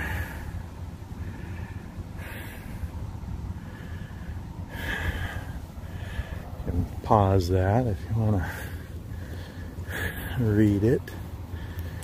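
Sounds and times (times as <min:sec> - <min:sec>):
person breathing: 0:00.0 - 0:06.6, 0:08.4 - 0:10.4, 0:11.2 - 0:12.0
low steady rumble: 0:00.0 - 0:12.0.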